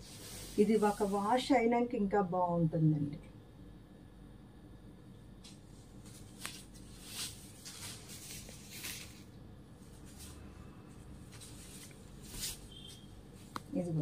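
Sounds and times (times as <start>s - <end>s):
cloth rustling: 0.0s - 1.3s, 5.5s - 13.6s.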